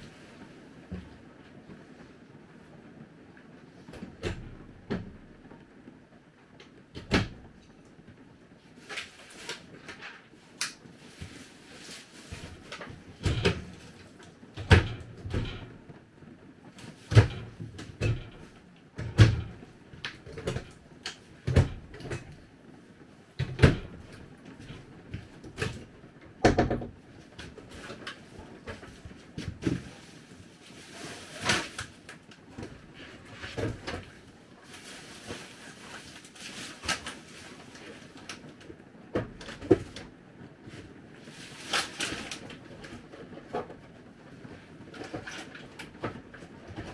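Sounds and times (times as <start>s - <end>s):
cabinet doors opening and closing: 3.9s - 5.3s, 7.0s - 7.6s, 12.2s - 15.8s, 16.8s - 22.4s, 23.4s - 34.3s
knocks and thuds of objects: 12.3s - 15.8s, 16.9s - 20.8s, 21.4s - 22.4s, 23.4s - 30.1s, 39.1s - 40.1s.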